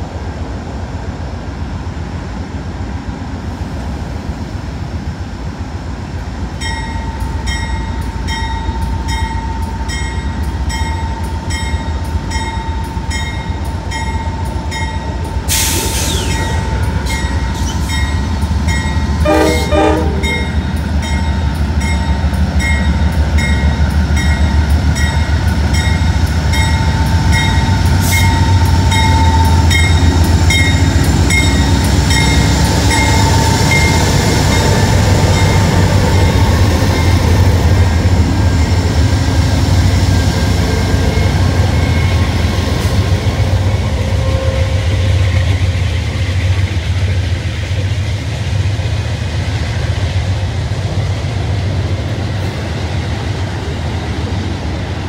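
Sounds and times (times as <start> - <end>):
diesel locomotive engine rumble: 0.0 - 55.0
locomotive bell ringing: 6.6 - 15.4, 16.3 - 37.5
train horn blast: 19.2 - 20.6, 43.7 - 45.3.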